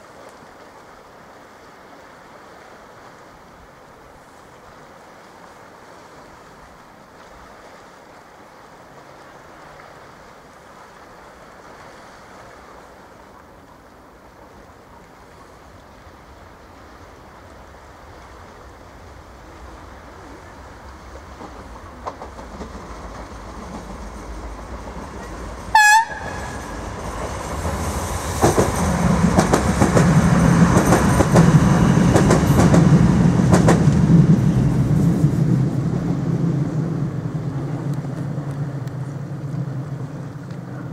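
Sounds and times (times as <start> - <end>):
electric train rumbling past: 15.7 - 40.9
train horn toot: 25.2 - 27.0.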